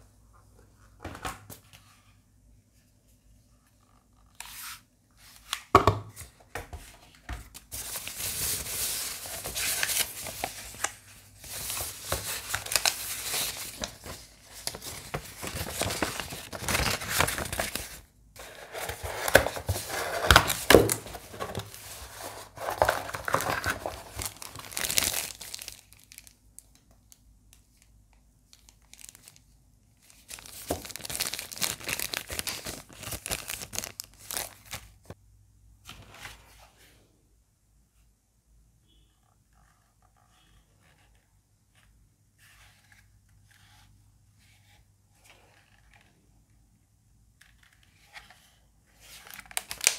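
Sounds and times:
packing paper rustling: 7.4 - 26.4, 28.5 - 29.4, 30.0 - 35.2, 49.0 - 49.9.

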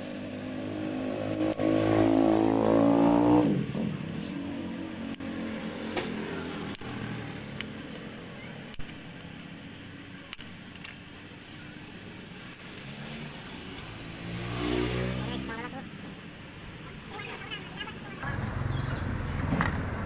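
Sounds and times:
vehicle engine revving past: 0.6 - 7.4, 12.9 - 15.6.

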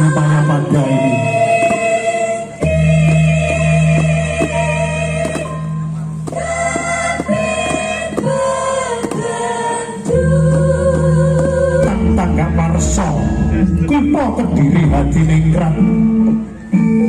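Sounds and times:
voices singing held notes: 0.0 - 17.0
steady light beat: 0.1 - 16.8
low sustained bass: 10.2 - 17.0.

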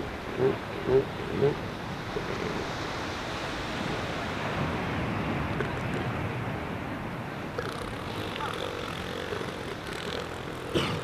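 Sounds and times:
elephant seal call: 0.0 - 2.6.

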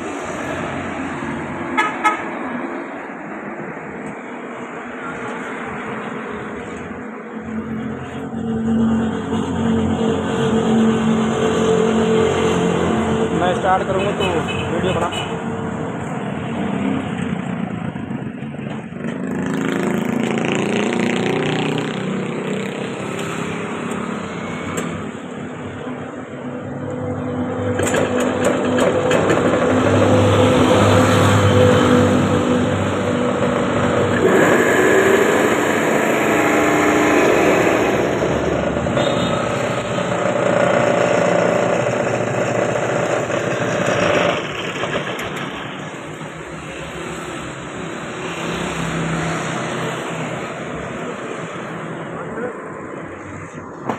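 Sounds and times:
small lawn mower engine running: 33.2 - 39.2, 39.8 - 45.8.

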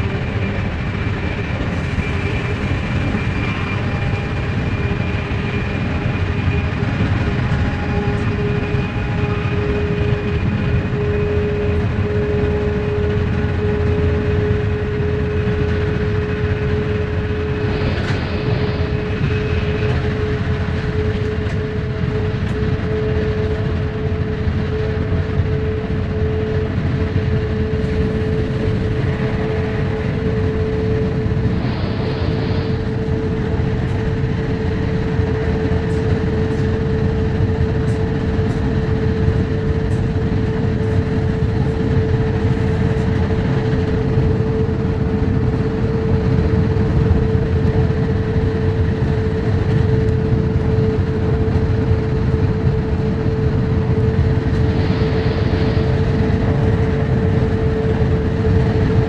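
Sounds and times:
steady humming tone: 0.0 - 59.0
train rumble and rushing: 0.0 - 59.0.

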